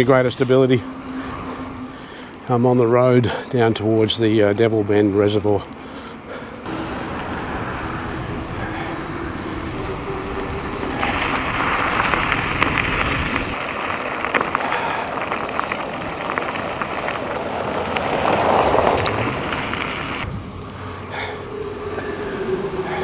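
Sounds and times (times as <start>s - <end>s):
bicycle tyres on gravel: 0.0s - 23.0s
car driving past: 6.1s - 23.0s
wind noise on microphone: 6.7s - 23.0s.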